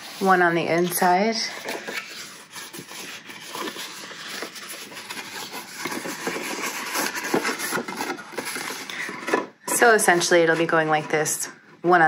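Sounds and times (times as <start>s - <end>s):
cardstock rustling and scraping: 0.0s - 11.4s.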